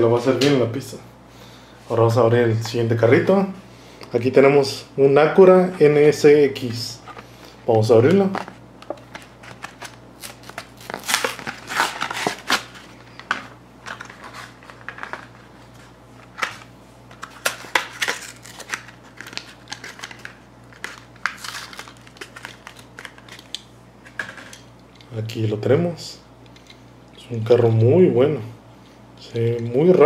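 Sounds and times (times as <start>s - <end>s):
plastic blister pack crinkling: 8.1s - 23.7s.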